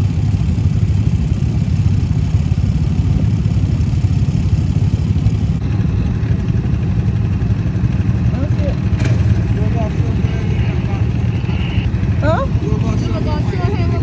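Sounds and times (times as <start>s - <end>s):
buggy engine rumbling: 0.0s - 14.0s.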